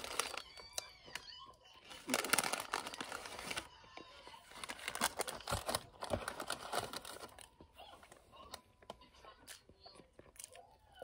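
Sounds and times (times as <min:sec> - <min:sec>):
paper bag crinkling: 0:00.0 - 0:00.9, 0:01.8 - 0:03.7, 0:04.4 - 0:07.5.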